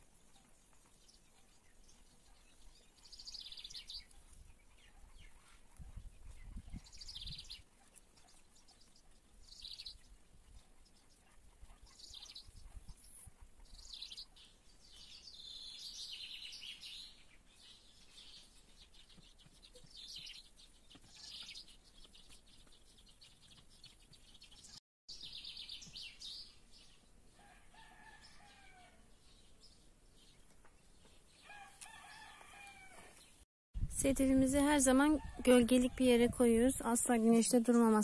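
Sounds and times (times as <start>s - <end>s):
songbirds chirping: 0.0s - 38.0s
distant rooster crowing: 27.4s - 29.1s, 31.4s - 33.2s.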